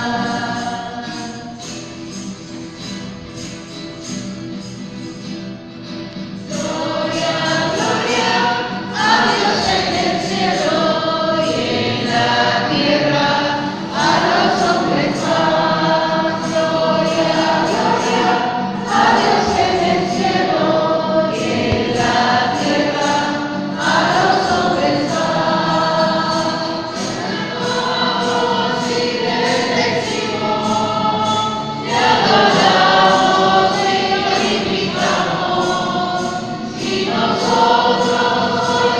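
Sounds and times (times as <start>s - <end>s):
choir singing a hymn: 0.0s - 2.2s, 6.2s - 38.9s.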